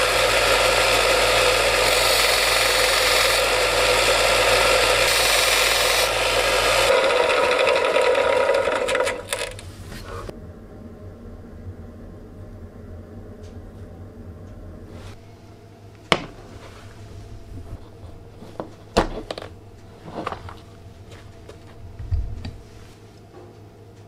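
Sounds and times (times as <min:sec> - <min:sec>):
low steady hum: 0:09.1 - 0:24.0.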